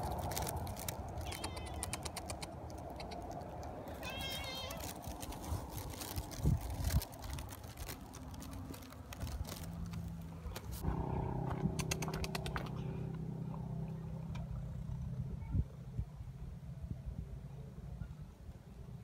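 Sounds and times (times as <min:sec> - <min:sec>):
rustles and clicks: 0:00.0 - 0:10.9
vehicle engine idling: 0:00.0 - 0:15.6.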